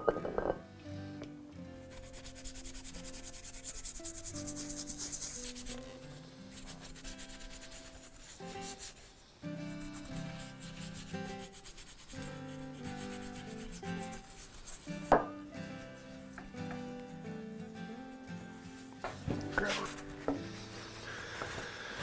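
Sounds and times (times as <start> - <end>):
soft background music: 0.0 - 22.0
toothbrush scrubbing metal: 1.9 - 15.1.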